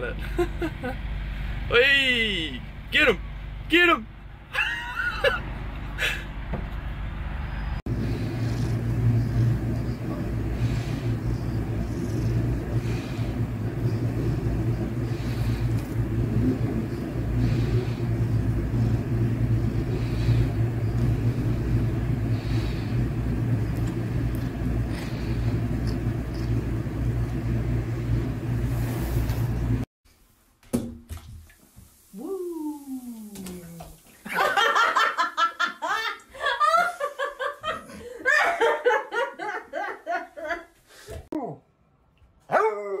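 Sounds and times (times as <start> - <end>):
cat purring: 10.1 - 13.3.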